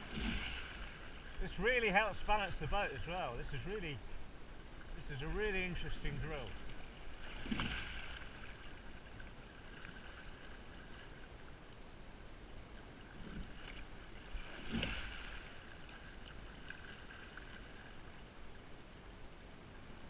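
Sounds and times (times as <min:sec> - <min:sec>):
oars splashing and knocking: 0:00.0 - 0:02.8, 0:05.4 - 0:11.1, 0:13.2 - 0:17.8
water moving along boat hull: 0:00.0 - 0:11.9, 0:12.6 - 0:18.6.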